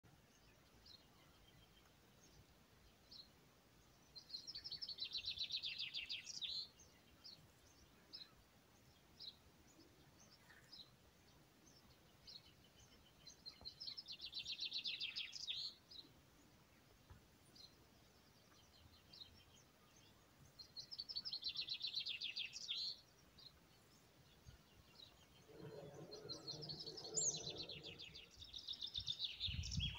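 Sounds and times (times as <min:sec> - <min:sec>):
faint bird chirps: 0:00.2 - 0:29.9
songbird trilling: 0:25.4 - 0:29.9.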